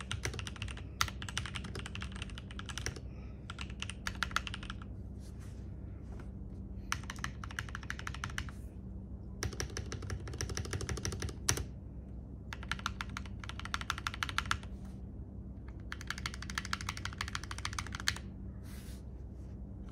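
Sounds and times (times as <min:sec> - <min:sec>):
typing on mechanical keyboard: 0:00.0 - 0:04.9, 0:06.9 - 0:08.6, 0:09.4 - 0:11.7, 0:12.5 - 0:14.7, 0:15.7 - 0:18.3.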